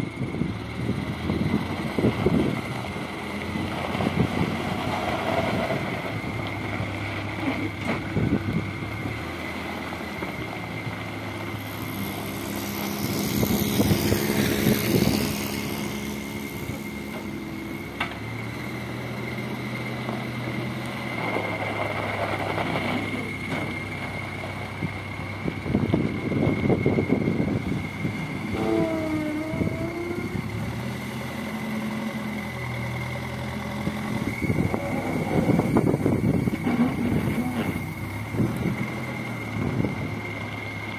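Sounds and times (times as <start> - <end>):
diesel engine revving: 0.0 - 40.9
bucket working in gravel: 20.0 - 24.9, 33.8 - 39.8.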